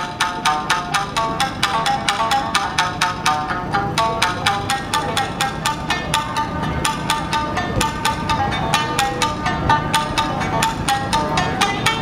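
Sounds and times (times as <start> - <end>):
shamisen plucked hard: 0.0 - 12.0.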